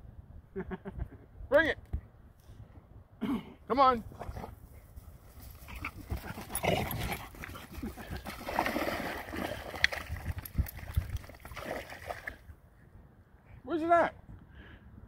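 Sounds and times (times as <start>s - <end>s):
splashing in shallow water: 6.0s - 12.5s.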